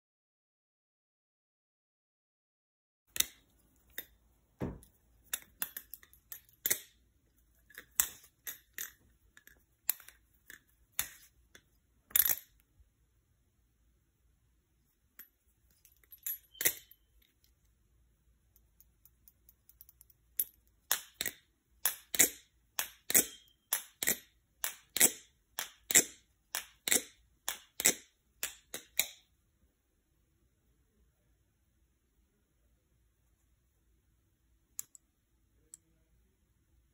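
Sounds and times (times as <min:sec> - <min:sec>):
butterfly knife handles clacking: 0:04.8 - 0:07.0, 0:07.6 - 0:12.6, 0:15.2 - 0:17.1, 0:19.0 - 0:29.2.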